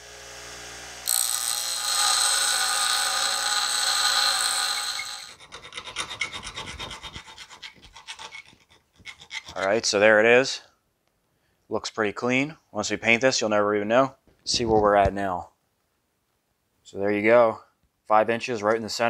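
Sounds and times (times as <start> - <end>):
bench grinder running: 0.0 - 5.4
steel ground against grinding wheel: 1.1 - 9.7
hand file rasping on metal: 1.1 - 10.0.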